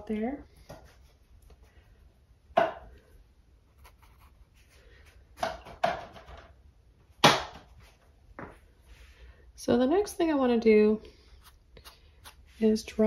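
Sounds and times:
sharp knocks of hard objects: 7.2 - 7.7.

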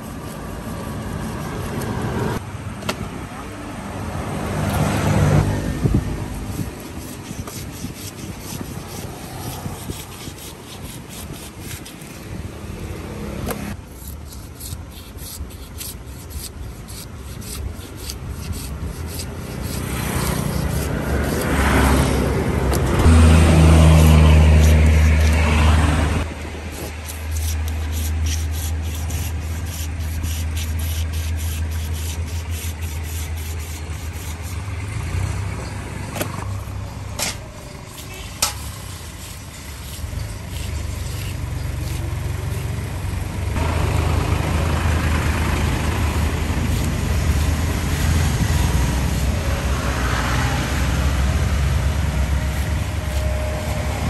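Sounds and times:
motor vehicle passing: 0.0 - 13.8, 16.9 - 54.0
knife scraping fish scales: 6.4 - 12.3, 13.7 - 25.6, 26.2 - 34.6, 36.4 - 42.8, 46.1 - 49.6, 52.4 - 53.9
low engine hum: 29.3 - 54.0.

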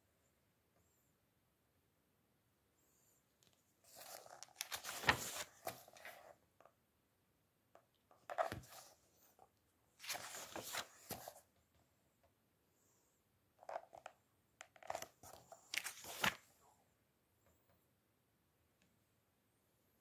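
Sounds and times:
book pages rustling: 3.5 - 6.4, 8.2 - 9.0, 10.0 - 11.5, 13.6 - 16.6.

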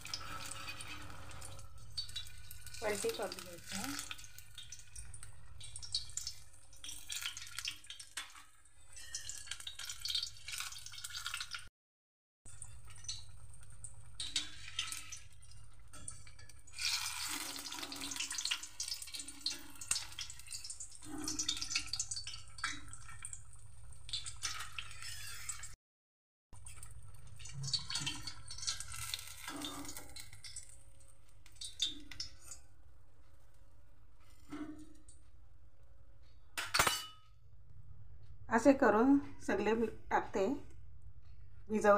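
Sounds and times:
oil sizzling while deep-frying: 0.0 - 11.7, 12.5 - 25.8, 26.6 - 32.7.

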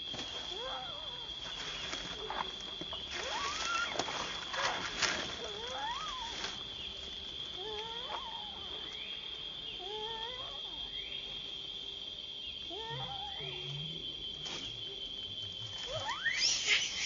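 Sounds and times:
steady high-pitched hum: 0.0 - 17.0
baby monkey crying: 5.4 - 6.4, 7.6 - 8.9, 9.8 - 10.8, 12.7 - 13.7, 15.9 - 17.0.

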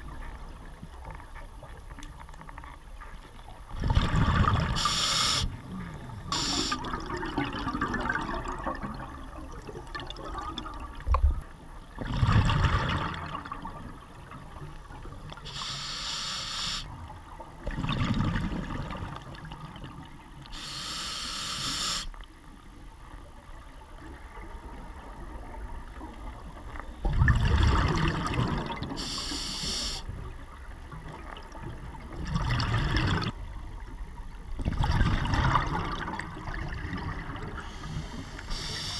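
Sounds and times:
bubbles on exhale: 3.8 - 5.0, 27.1 - 29.0
regulator hiss on inhale: 4.8 - 5.6, 6.3 - 6.8, 15.5 - 16.9, 20.5 - 22.1, 29.0 - 30.1, 37.6 - 38.9.

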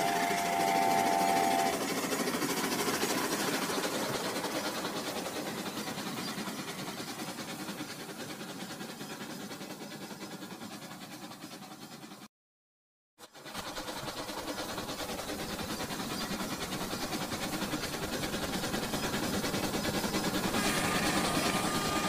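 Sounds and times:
toy horn tone: 0.0 - 1.7
toy train rattling on track: 0.0 - 12.2, 13.2 - 22.0.

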